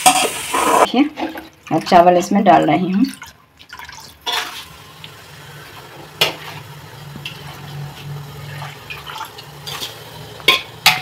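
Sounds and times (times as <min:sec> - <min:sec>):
water and rice splashing into pot: 0:01.2 - 0:05.2, 0:08.3 - 0:11.0.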